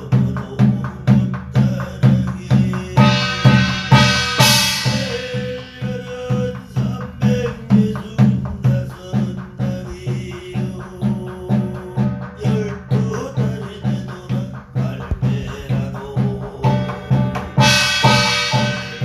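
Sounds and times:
barrel drum beaten with a stick: 0.0s - 19.0s
small brass gong ringing: 17.2s - 19.0s.

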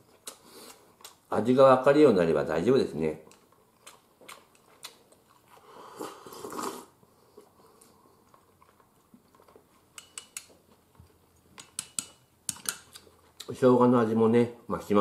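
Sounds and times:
faint chewing: 0.0s - 1.3s, 3.1s - 13.6s
person slurping: 4.8s - 7.8s
chopsticks clicking against cup: 9.9s - 10.6s, 11.6s - 13.1s.

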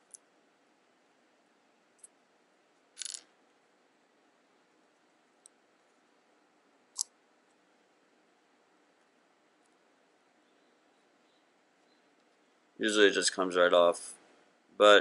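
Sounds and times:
small clicks: 3.0s - 3.3s.

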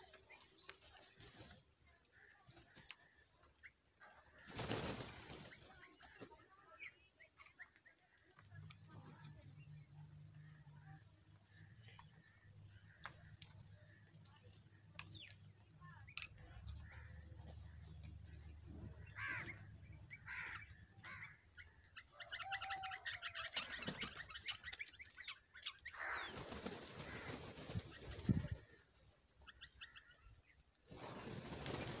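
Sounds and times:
crows and mynas calling: 2.1s - 6.9s, 9.0s - 15.3s, 15.9s - 30.6s
wing flapping: 4.3s - 6.5s, 23.4s - 29.2s, 30.8s - 32.0s.

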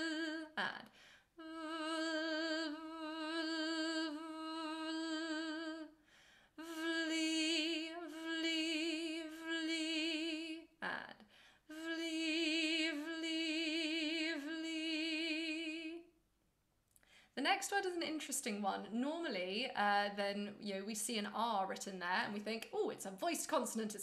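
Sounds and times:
quick breaths: 6.0s - 6.6s, 17.0s - 17.4s.

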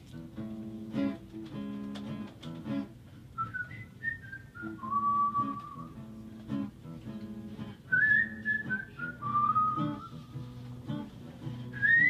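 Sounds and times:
acoustic guitar picking: 0.0s - 12.0s
whistled melody: 3.4s - 6.0s, 7.9s - 10.4s, 11.7s - 12.0s.

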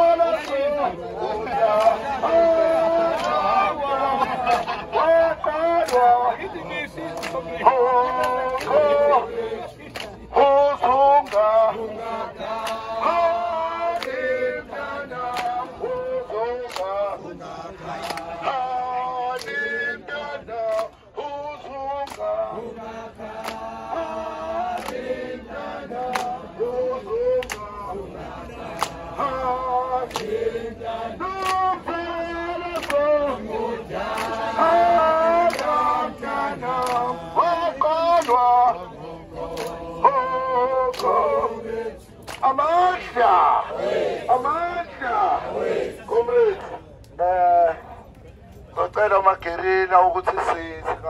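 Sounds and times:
group singing chant-like song: 0.0s - 47.4s
hand claps: 0.4s - 0.7s, 1.7s - 2.0s, 3.1s - 3.5s, 4.4s - 4.8s, 5.8s - 6.2s, 7.0s - 8.9s, 9.9s - 10.2s, 11.2s - 11.7s, 12.4s - 13.0s, 13.9s - 14.3s, 15.2s - 16.0s, 16.6s - 17.1s, 18.0s - 18.4s, 19.3s - 19.6s, 20.7s - 21.0s, 22.0s - 22.3s, 23.3s - 23.7s, 24.7s - 25.1s, 26.0s - 26.5s, 27.2s - 27.8s, 28.7s - 29.4s, 30.0s - 30.4s, 31.2s - 31.8s, 32.7s - 33.2s, 34.0s - 37.2s, 37.9s - 38.7s, 39.5s - 39.8s, 40.8s - 41.4s, 42.2s - 42.4s.

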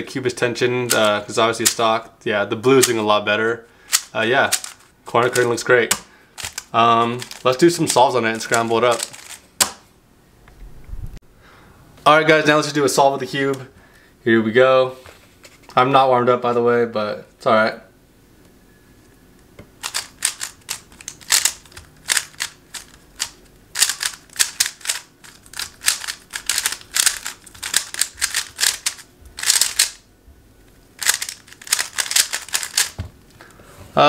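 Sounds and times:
puzzle cube plastic clicking: 3.9s - 9.8s, 19.8s - 30.0s, 31.0s - 33.0s.

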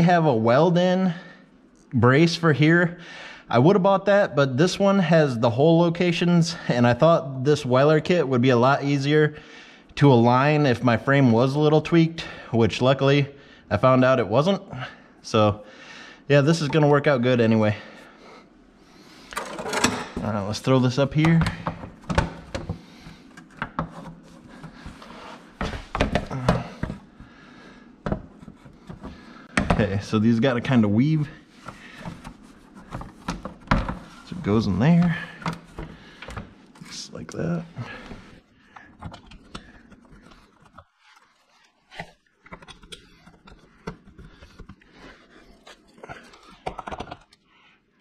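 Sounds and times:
metal clicks and knocks: 19.3s - 20.2s.

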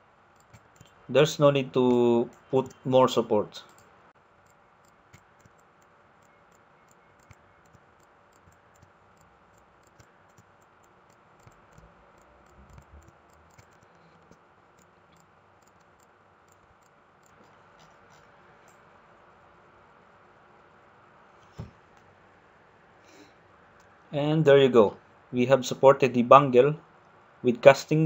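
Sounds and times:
computer mouse clicks: 0.4s - 1.0s, 1.9s - 2.9s, 3.6s - 18.8s.

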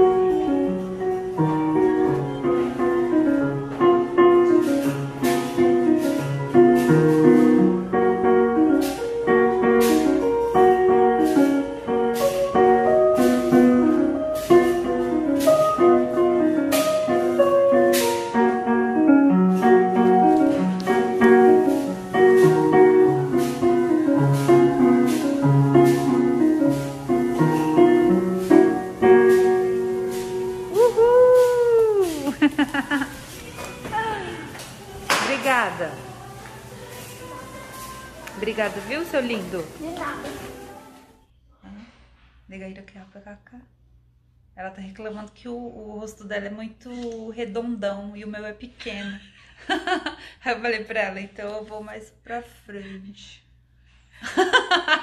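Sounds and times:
upright piano playing: 0.0s - 41.2s.

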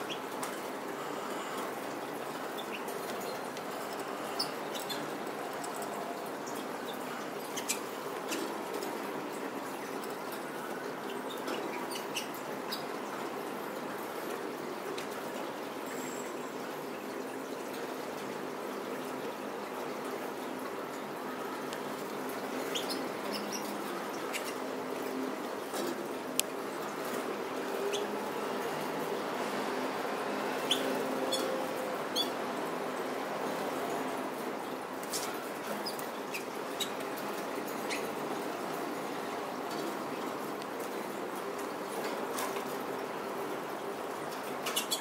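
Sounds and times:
canaries chirping: 0.0s - 13.2s, 22.0s - 25.9s, 30.4s - 34.2s, 35.0s - 39.0s, 44.6s - 45.0s
steady background hiss: 0.0s - 45.0s.

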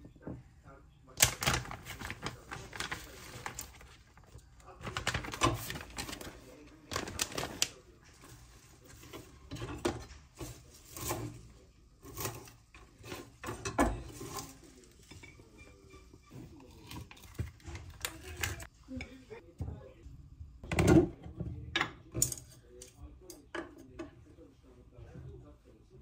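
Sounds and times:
objects tapping and knocking: 6.9s - 19.8s.

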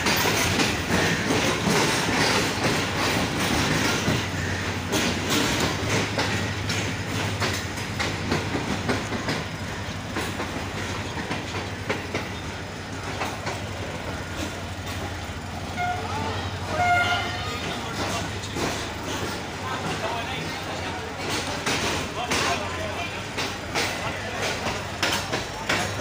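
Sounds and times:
train wheels clicking over rail joints: 0.0s - 26.0s.

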